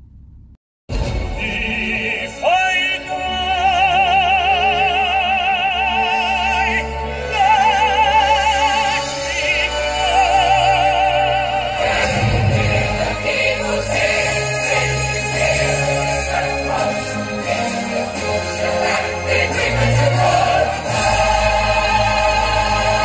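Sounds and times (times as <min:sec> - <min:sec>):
musical accompaniment: 0:00.9 - 0:23.0
man singing operatically: 0:01.2 - 0:11.8.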